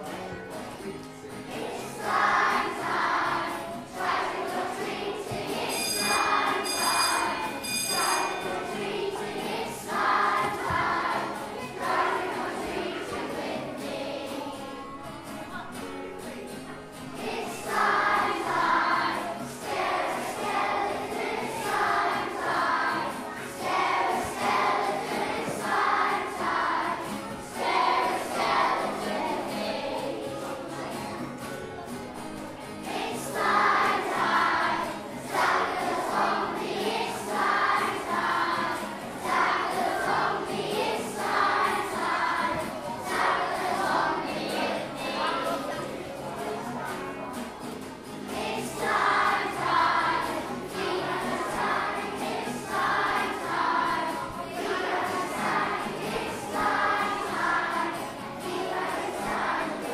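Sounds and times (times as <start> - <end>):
children's choir singing: 0.0 - 59.9
instrumental accompaniment: 4.0 - 11.2.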